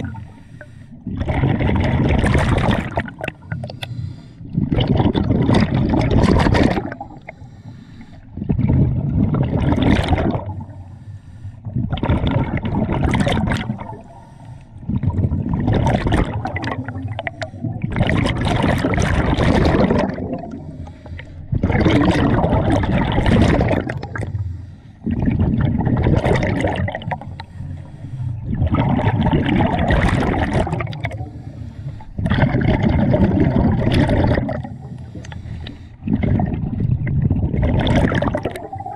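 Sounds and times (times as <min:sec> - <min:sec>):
diver breathing through regulator: 0:00.0 - 0:01.2, 0:03.2 - 0:04.7, 0:06.9 - 0:08.5, 0:10.5 - 0:11.9, 0:13.8 - 0:15.2, 0:16.8 - 0:18.0, 0:20.5 - 0:21.7, 0:24.2 - 0:25.4, 0:27.0 - 0:28.8, 0:31.1 - 0:32.5, 0:34.4 - 0:36.3
exhaled air bubbling underwater: 0:00.0 - 0:38.9.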